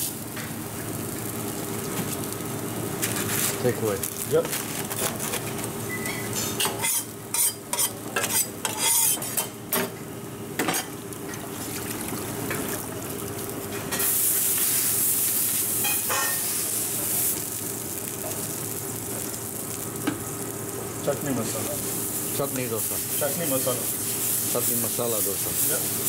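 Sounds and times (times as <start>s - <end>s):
metal spatula scraping griddle: 6.3s - 9.4s
loud sizzling hiss: 13.9s - 26.0s.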